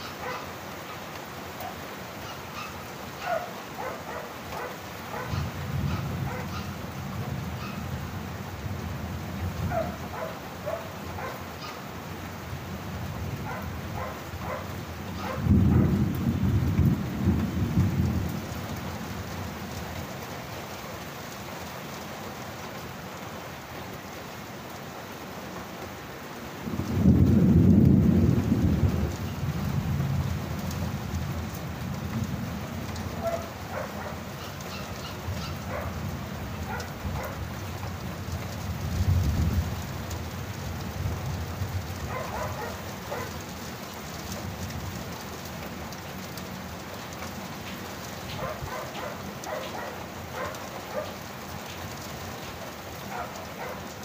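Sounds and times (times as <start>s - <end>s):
steady rain: 0.0s - 54.0s
rolling thunder: 13.0s - 18.9s, 26.6s - 33.8s, 38.3s - 43.3s.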